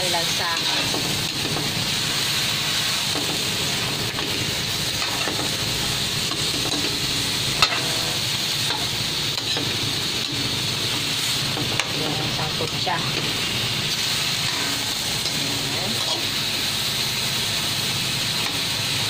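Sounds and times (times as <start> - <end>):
chicken sizzling in a wok: 0.0 - 19.0.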